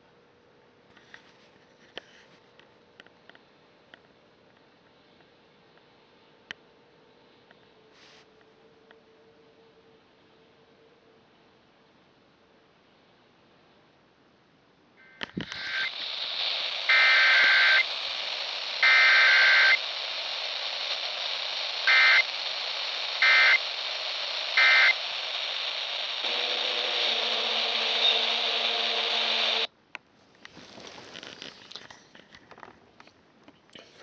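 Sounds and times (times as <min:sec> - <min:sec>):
low multi-pitch hum: 0:01.5 - 0:29.9
radio static hiss: 0:15.0 - 0:29.8
digital data bursts: 0:15.4 - 0:29.7.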